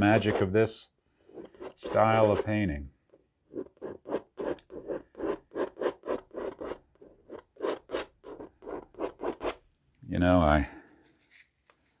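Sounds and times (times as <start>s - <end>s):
palette knife scraping paint: 0.0s - 0.6s, 1.2s - 2.7s, 3.5s - 9.6s.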